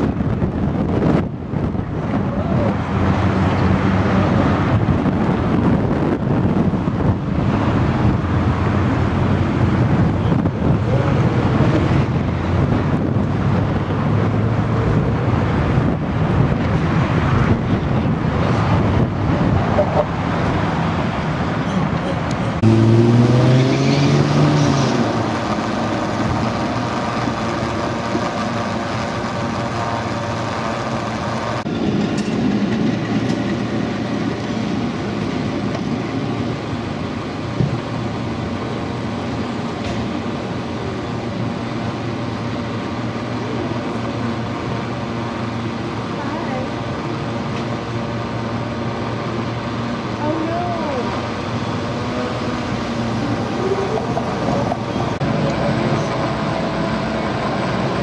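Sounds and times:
traffic rumble: 0:00.0 - 0:58.0
vehicle engine revving: 0:22.4 - 0:31.7.

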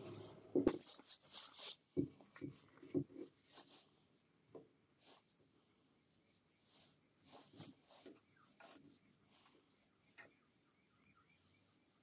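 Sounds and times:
gloves rubbing on wood: 0:05.0 - 0:12.0.

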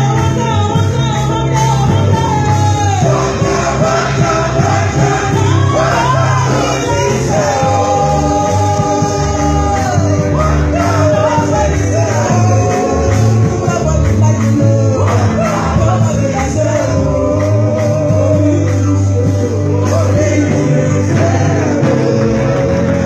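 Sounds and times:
woman singing into a microphone: 0:00.0 - 0:03.4
amplified backing music with bass beat: 0:00.0 - 0:23.0.

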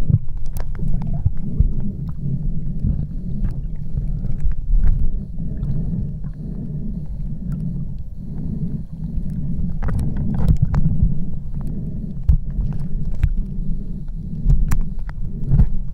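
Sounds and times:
underwater rumble of sea water: 0:00.0 - 0:15.9
sharp clicks and pops: 0:14.4 - 0:15.8.

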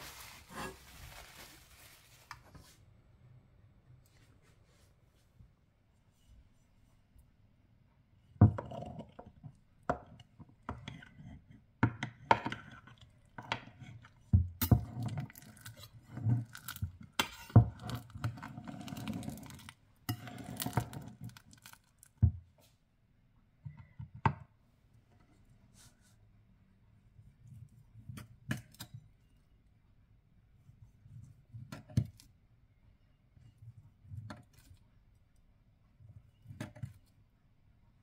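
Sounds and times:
metal spatula scraping ceramic dish: 0:17.2 - 0:21.2.

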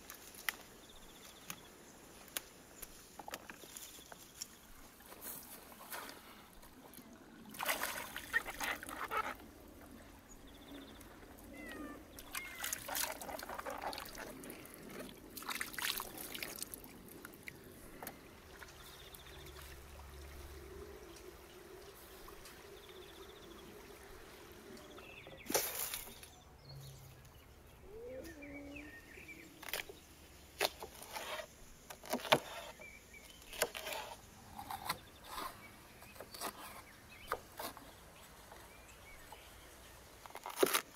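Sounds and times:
water trickling: 0:06.8 - 0:28.0.

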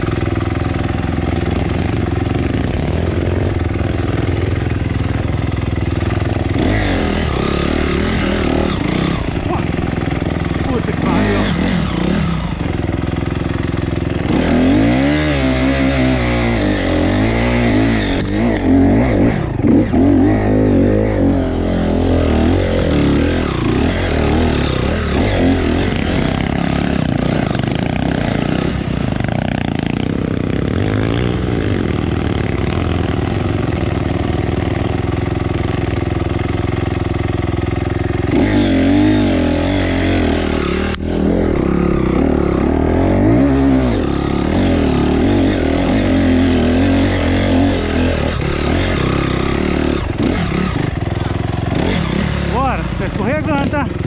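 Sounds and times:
dirt bike engine running: 0:00.0 - 0:54.0.

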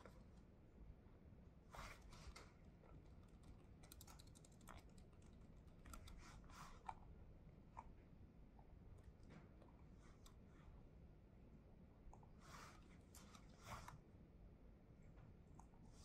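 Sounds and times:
typing on laptop keyboard: 0:02.9 - 0:06.4.

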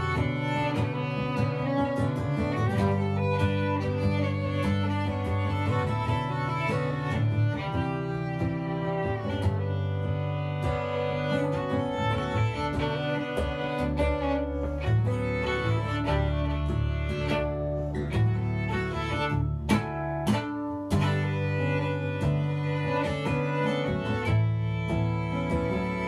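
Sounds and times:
bowed strings sustained low notes: 0:00.0 - 0:26.0
higher string line: 0:00.0 - 0:26.0
sharp string attacks: 0:00.0 - 0:26.0.

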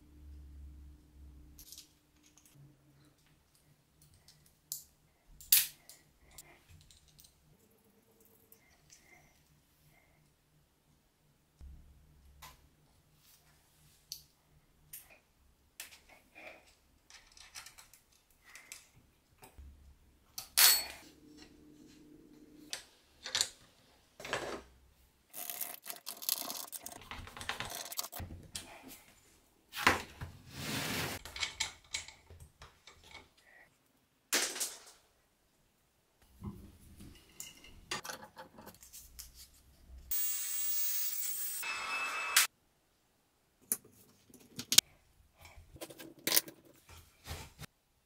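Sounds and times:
metal tools clinking and knocking: 0:20.4 - 0:21.1.

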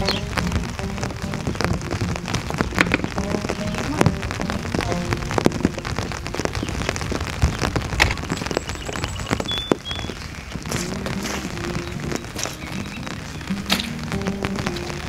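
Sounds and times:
rain falling: 0:00.0 - 0:15.0
raindrops ticking: 0:00.0 - 0:15.0.

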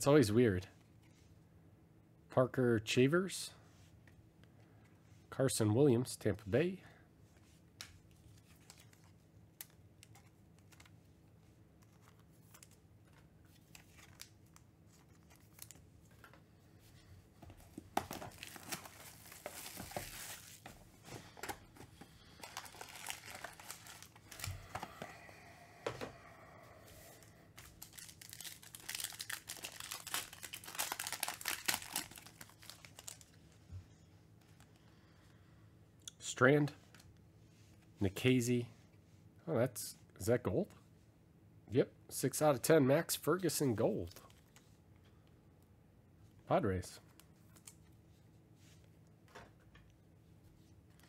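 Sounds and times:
cellophane crinkling: 0:18.0 - 0:21.5, 0:22.2 - 0:25.0, 0:27.6 - 0:33.4
foil pack tearing: 0:22.4 - 0:24.4, 0:27.8 - 0:33.2.

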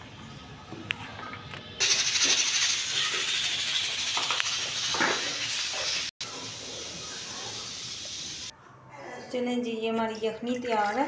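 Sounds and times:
pressure cooker steam hiss: 0:01.8 - 0:08.5.

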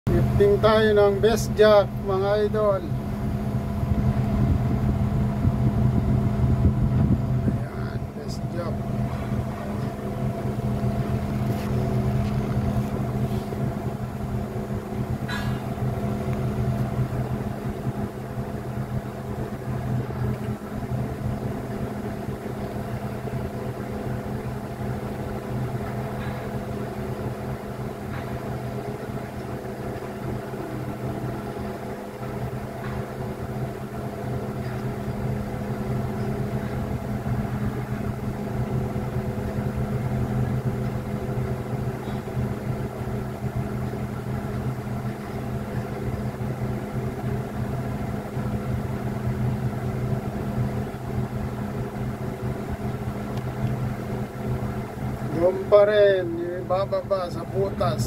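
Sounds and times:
crane engine idling: 0:00.1 - 0:58.0.

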